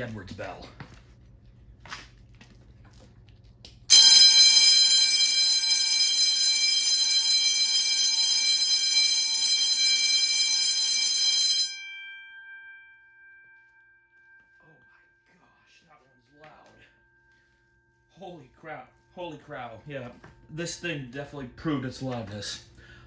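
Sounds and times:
fire alarm bell ringing: 3.9s - 21.6s.

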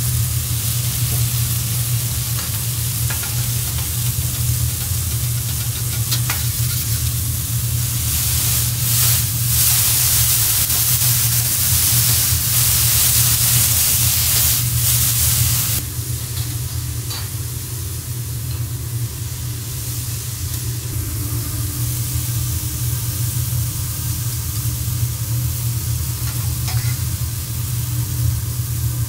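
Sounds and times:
bean sprouts sizzling on griddle: 0.0s - 15.9s, 21.8s - 29.0s
steady low hum: 0.0s - 29.0s.

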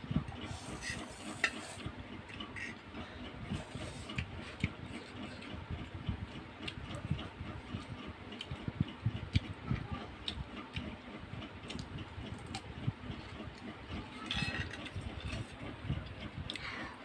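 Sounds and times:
chewing: 3.5s - 9.6s, 10.2s - 16.8s.

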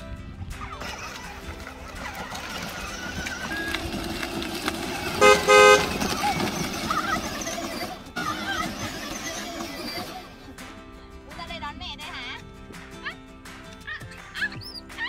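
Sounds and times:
toy car horn toots: 5.1s - 7.9s.

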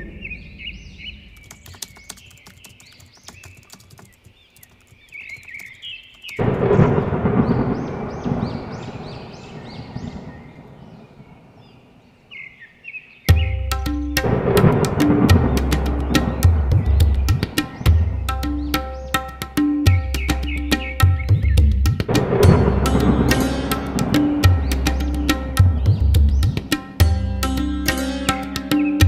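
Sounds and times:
birds chirping: 0.0s - 29.0s
sharp clicks: 1.4s - 6.5s
thunder rumble: 6.4s - 12.0s, 14.2s - 18.4s, 22.1s - 26.8s.

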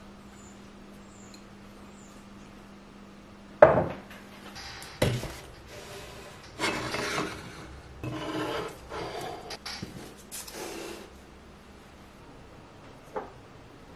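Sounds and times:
carafe scraping on shelf: 5.1s - 9.6s.

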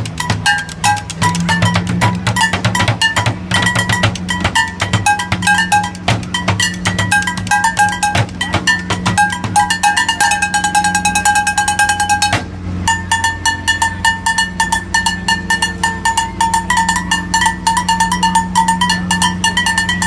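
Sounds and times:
sticks drumming on plastic jugs: 0.0s - 12.5s
metal pans ringing: 0.0s - 20.0s
steady low hum: 0.0s - 20.0s.

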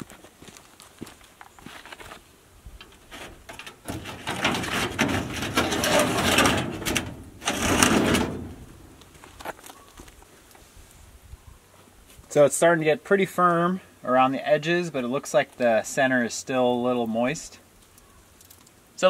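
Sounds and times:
sheet metal rattling and scraping: 2.8s - 9.0s.

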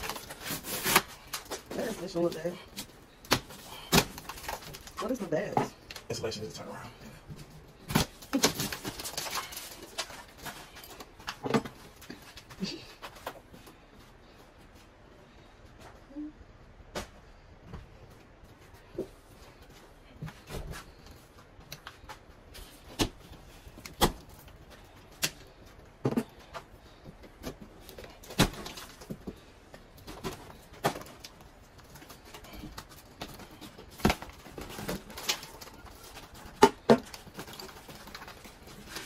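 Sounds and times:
drywall cracking and breaking: 0.0s - 6.0s, 7.8s - 12.4s, 22.9s - 39.0s.

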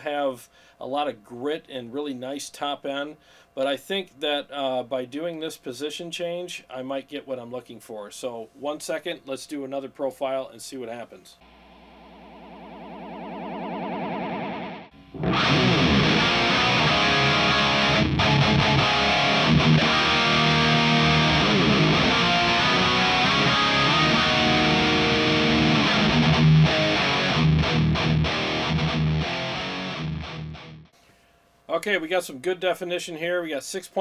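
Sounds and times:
amp profiling test signal: 11.4s - 27.9s
distorted electric guitar riffs: 11.4s - 30.9s.

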